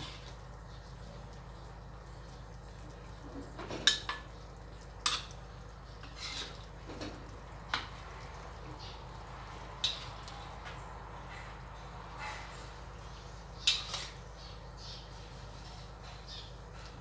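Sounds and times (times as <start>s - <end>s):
metal utensils clinking on wok: 5.0s - 5.4s, 9.8s - 10.4s.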